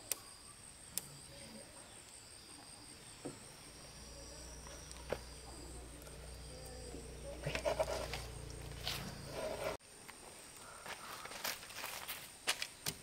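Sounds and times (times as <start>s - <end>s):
low steady hum: 3.4s - 9.8s.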